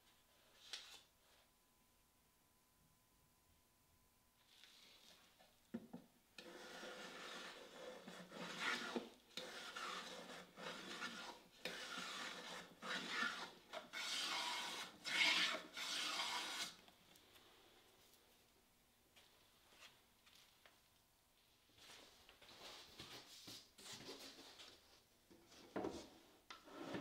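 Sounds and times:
abrasive tool rasping wood: 6.4 - 16.8.

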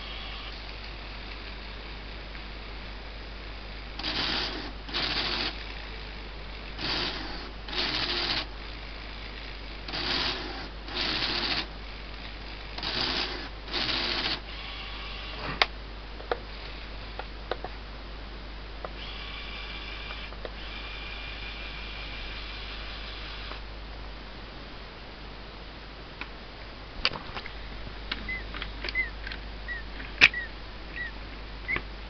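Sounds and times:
mechanical whirring of motors: 0.0 - 1.5, 4.0 - 5.8, 6.7 - 8.5, 9.2 - 11.7, 12.7 - 15.7, 19.0 - 23.6
faint motor whine: 0.0 - 32.0
sharp plastic clicks: 30.1 - 30.5.

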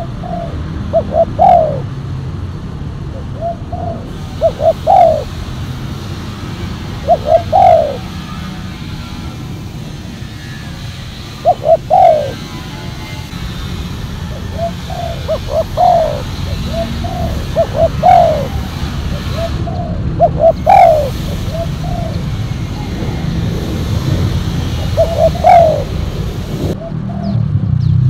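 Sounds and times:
dove cooing: 0.0 - 1.9, 3.1 - 5.6, 6.7 - 8.5, 11.1 - 12.8, 14.3 - 23.2, 24.7 - 27.4.

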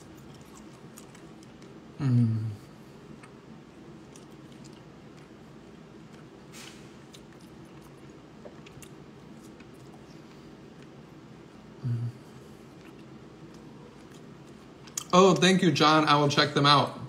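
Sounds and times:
mouth clicks and smacks eating: 0.0 - 1.8, 4.0 - 6.4, 7.1 - 11.0, 12.7 - 15.1.

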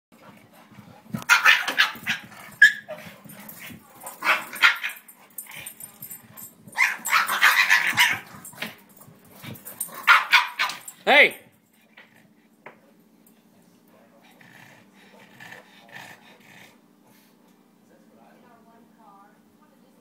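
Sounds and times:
dogs barking: 1.2 - 8.8, 9.8 - 11.0.

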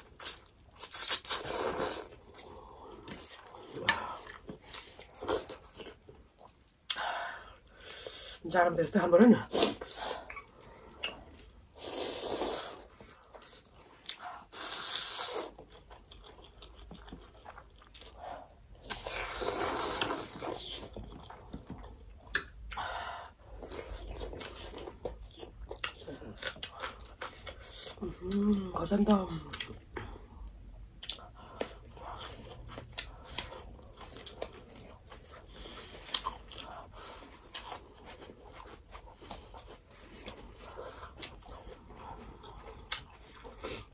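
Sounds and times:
people chewing and biting: 0.0 - 8.3, 9.6 - 28.7, 29.3 - 43.9
noodles being slurped: 18.9 - 21.6.

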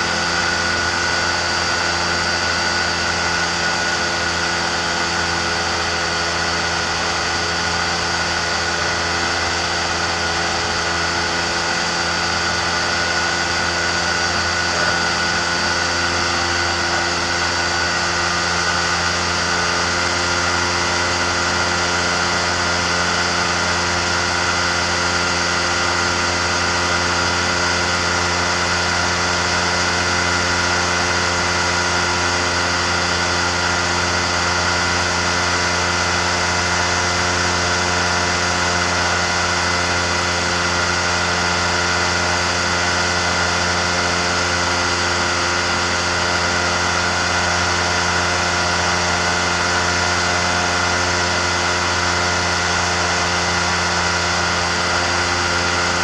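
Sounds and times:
engine and propeller droning: 0.0 - 56.0.

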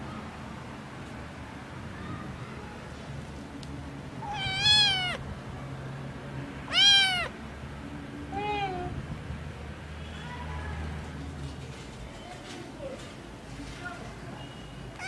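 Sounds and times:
kitten meowing: 4.2 - 5.2, 6.7 - 7.3.

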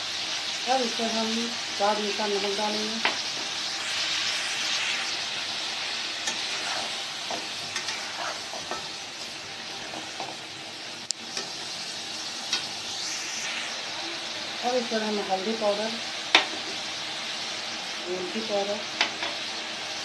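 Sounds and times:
food sizzling in hot oil: 0.0 - 20.0
spatula scraping pan: 6.2 - 10.3.

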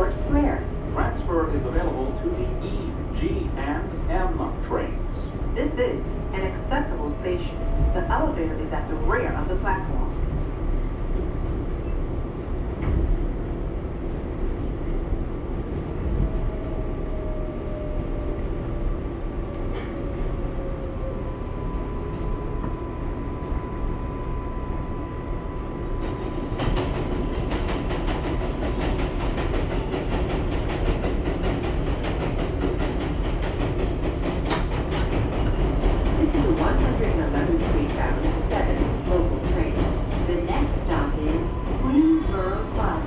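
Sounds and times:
subway train rumbling: 0.0 - 43.0
wheels clattering on rail: 26.4 - 43.0.

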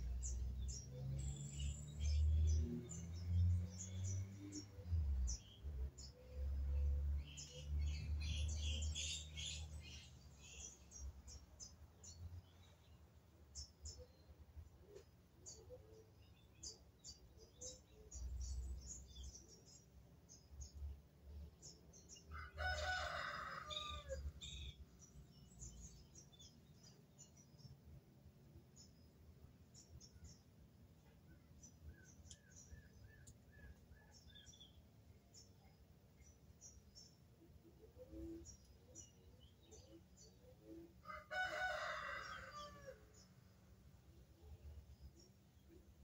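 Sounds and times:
small birds chirping: 0.0 - 46.0
rooster crowing: 22.3 - 24.2, 41.0 - 43.0.

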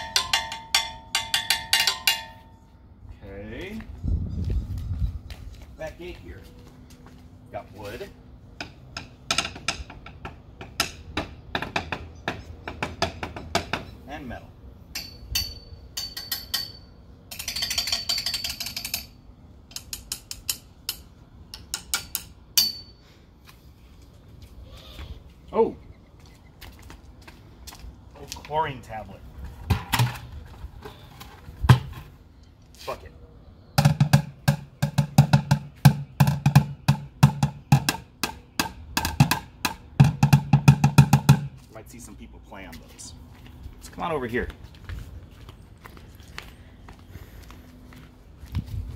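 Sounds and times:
drumsticks beating a plastic bucket: 33.8 - 41.6.

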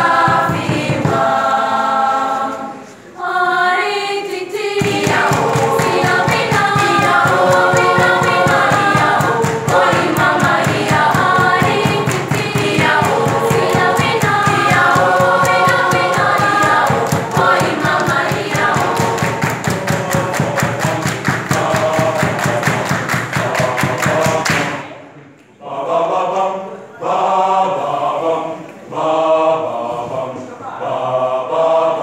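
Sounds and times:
rhythmic hand claps: 0.0 - 2.0, 4.3 - 24.9
children's choir singing: 0.0 - 32.0.

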